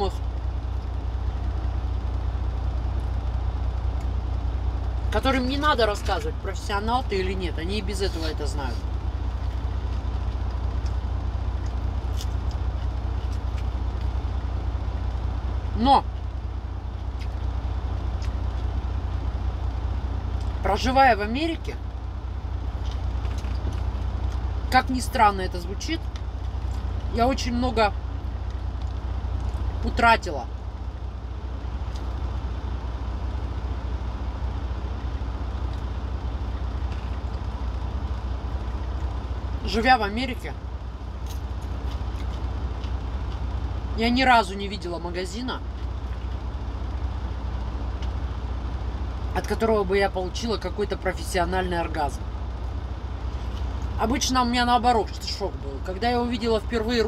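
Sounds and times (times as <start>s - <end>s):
truck engine idling: 0.0s - 57.0s.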